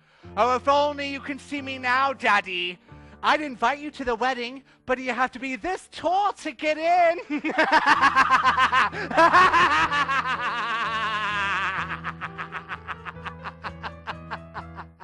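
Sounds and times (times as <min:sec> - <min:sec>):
man laughing theatrically: 0:07.2 - 0:15.0.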